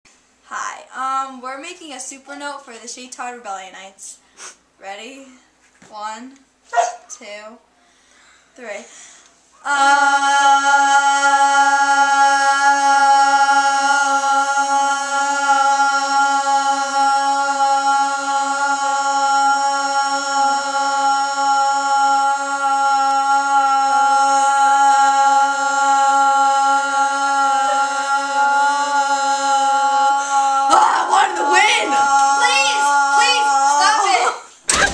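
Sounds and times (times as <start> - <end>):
girls singing a held note: 9.6 - 34.6.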